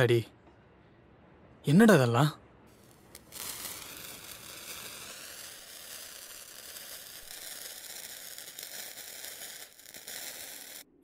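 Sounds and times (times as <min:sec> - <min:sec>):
sparkler fizzing hiss: 0:02.8 - 0:10.9.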